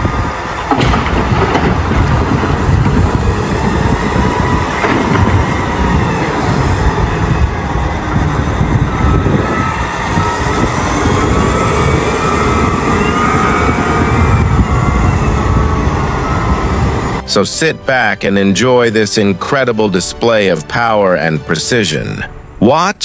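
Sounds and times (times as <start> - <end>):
diesel loader engine running hard: 0.0 - 17.3
coal tipping into truck: 0.7 - 2.5.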